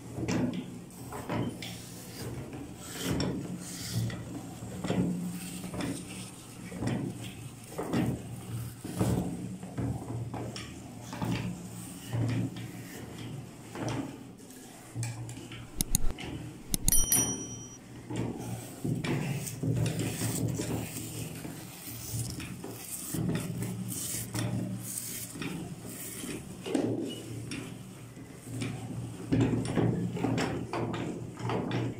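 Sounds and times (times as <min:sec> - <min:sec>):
sharp clicks: 0:15.7 - 0:16.1, 0:16.7 - 0:17.2
short high ding: 0:16.7 - 0:17.8.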